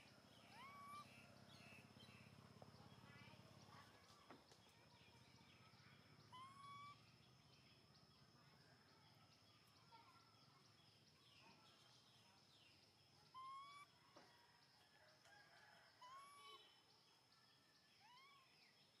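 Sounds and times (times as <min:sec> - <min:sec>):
short arching animal calls: 0:00.4 - 0:01.2, 0:13.3 - 0:13.9.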